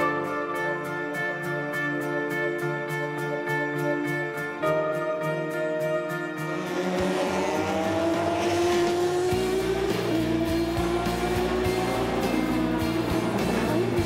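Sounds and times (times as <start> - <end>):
background music with low beat: 0.0 - 14.0
race car engines accelerating: 6.4 - 14.0.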